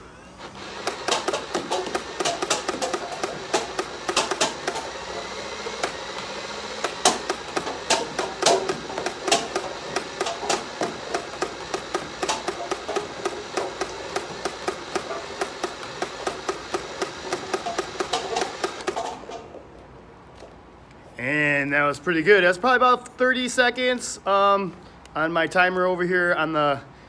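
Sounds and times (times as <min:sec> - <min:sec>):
toy blaster firing snaps: 0:00.7 - 0:05.0, 0:05.8 - 0:19.2.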